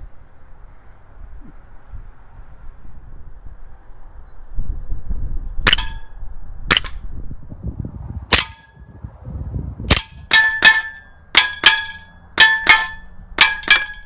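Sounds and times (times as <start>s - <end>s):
air pistol shots: 5.7s - 6.0s, 6.7s - 7.0s, 8.3s - 8.7s, 9.9s - 10.4s
metallic ring: 5.7s - 6.2s, 9.9s - 14.0s.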